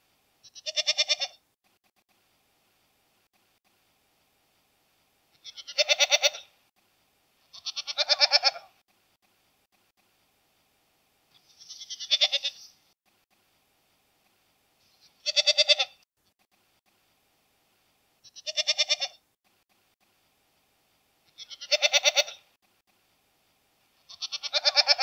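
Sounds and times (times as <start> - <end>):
goat bleating: 0.4 - 1.4, 5.4 - 6.5, 7.5 - 8.7, 11.4 - 12.7, 15.1 - 16.0, 18.2 - 19.2, 21.3 - 22.5, 24.1 - 25.0.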